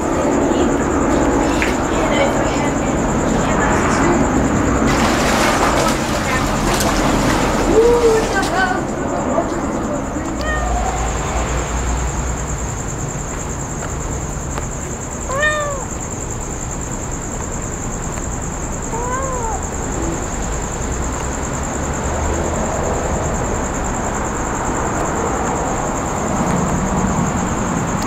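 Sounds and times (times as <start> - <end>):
kitten meowing: 10.3 - 11.0, 15.3 - 16.0, 18.9 - 19.7.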